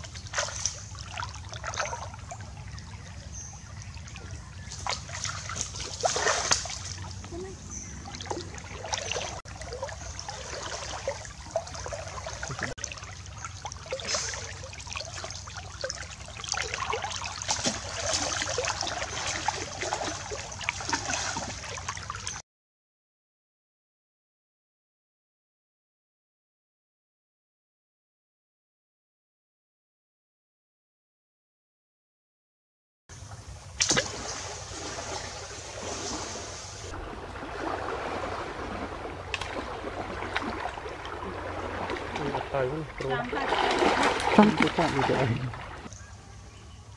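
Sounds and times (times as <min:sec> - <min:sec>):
river water sloshing and trickling: 0:00.0 - 0:22.4, 0:33.2 - 0:46.9
small water splashes: 0:00.0 - 0:22.4, 0:33.8 - 0:46.1
arrow splashing into water: 0:00.3 - 0:02.0, 0:04.8 - 0:07.0, 0:13.9 - 0:14.5, 0:16.8 - 0:21.7, 0:33.8 - 0:36.6, 0:37.5 - 0:40.7.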